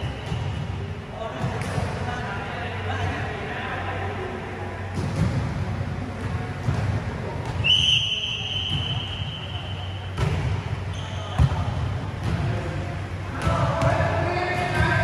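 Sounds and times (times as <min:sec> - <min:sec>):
low hum of fans: 0:00.0 - 0:15.0.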